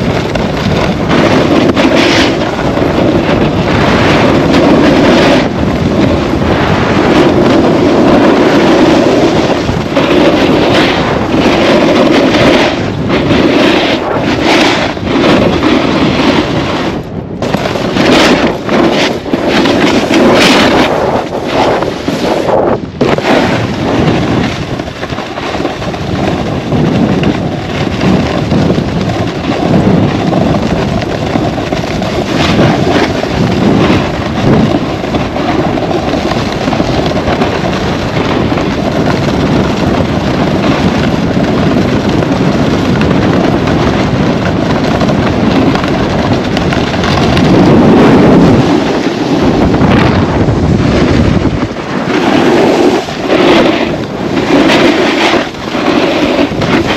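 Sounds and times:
wind buffeting microphone: 0.0 - 56.9.

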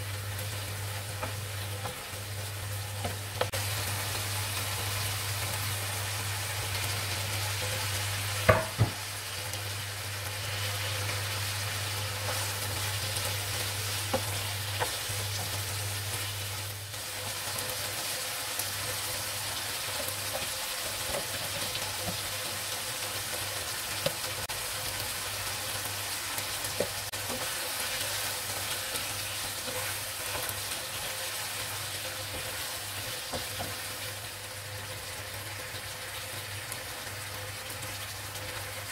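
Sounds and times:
food sizzling in a pan: 0.0 - 38.9
wooden spatula knocking on pan: 8.4 - 9.0.

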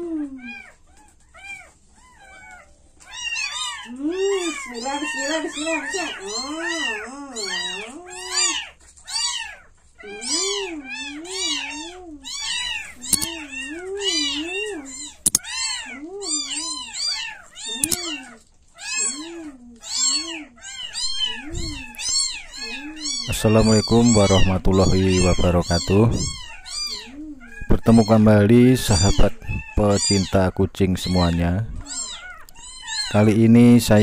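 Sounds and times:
kittens mewing: 0.0 - 34.0
brief clicks: 15.2 - 15.4.

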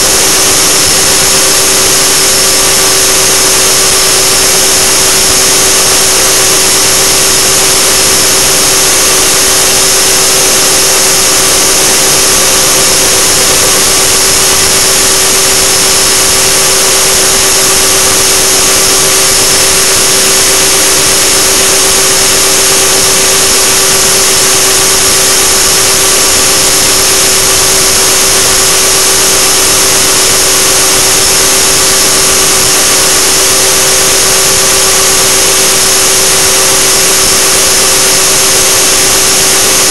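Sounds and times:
helicopter rotor whine: 0.0 - 39.9.

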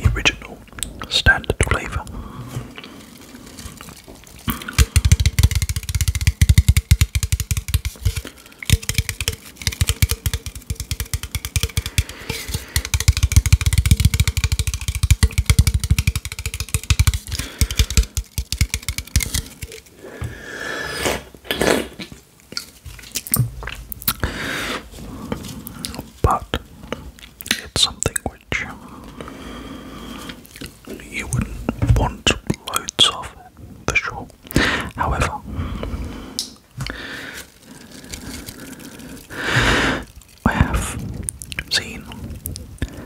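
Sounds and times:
fingernails tapping on metal can: 4.6 - 19.9
rustles: 36.7 - 43.0.

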